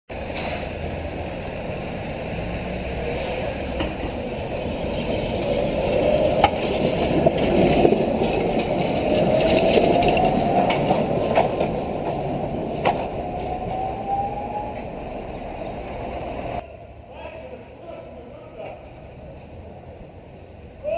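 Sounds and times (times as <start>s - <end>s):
tram rolling on tracks: 0.1s - 20.9s
wheels clicking over rails: 3.3s - 16.6s.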